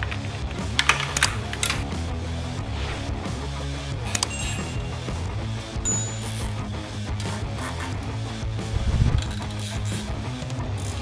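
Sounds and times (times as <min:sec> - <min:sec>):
background music: 0:00.0 - 0:11.0
zip tie clicking: 0:08.8 - 0:11.0.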